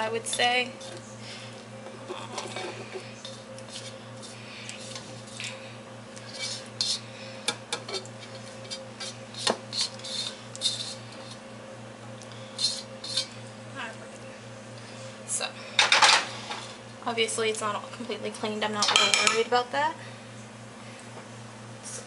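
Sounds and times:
steady low hum: 0.0s - 22.0s
metal tongs clinking on a wok: 18.8s - 19.4s.

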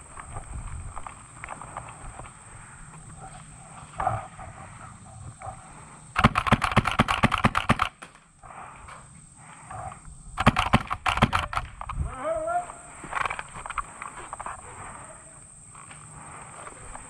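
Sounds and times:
rapid airsoft gunfire: 6.2s - 8.1s, 10.4s - 11.8s.

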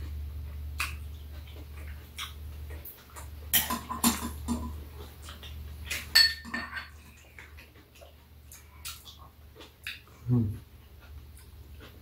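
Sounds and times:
low steady hum: 0.0s - 12.0s
utensils clinking on bowls: 5.9s - 7.2s.

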